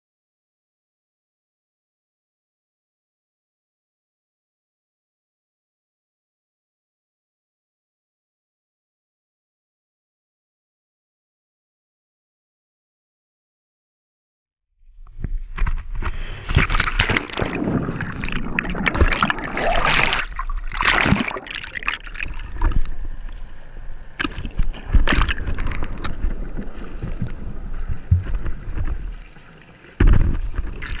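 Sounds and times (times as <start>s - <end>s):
muffled underwater bubbling: 16.1s - 31.0s
water splashing and churning: 16.3s - 31.0s.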